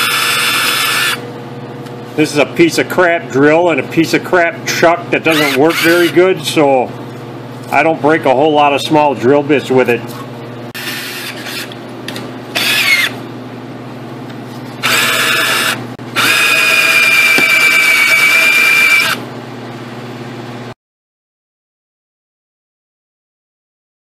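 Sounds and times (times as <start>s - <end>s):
cordless drill drilling steel: 0.0s - 1.2s, 5.3s - 6.2s, 12.6s - 13.2s, 14.8s - 19.2s
high steady drill squeal: 0.0s - 1.2s, 5.3s - 6.2s, 10.8s - 11.7s, 12.6s - 13.2s, 14.8s - 19.2s.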